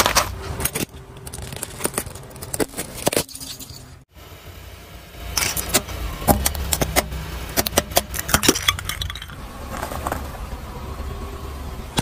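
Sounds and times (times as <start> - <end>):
car rumble: 0.0 - 12.0
light bulbs cracking: 5.4 - 9.4.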